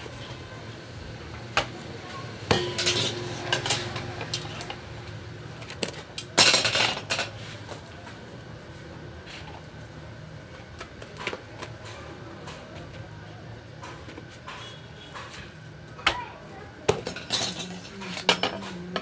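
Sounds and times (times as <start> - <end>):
metal pot ringing: 2.5 - 5.0
steel utensils clattering: 2.5 - 5.1, 6.4 - 7.4, 17.0 - 19.0.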